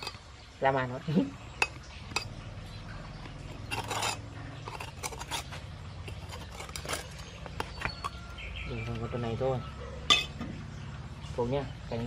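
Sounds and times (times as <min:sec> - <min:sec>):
blade scraping on concrete: 0:03.2 - 0:08.3.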